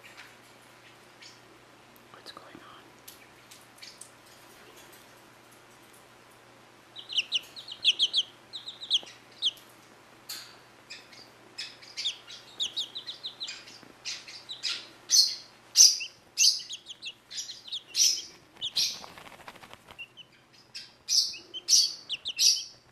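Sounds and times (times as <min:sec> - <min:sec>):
chicks peeping: 0:06.8 - 0:22.9.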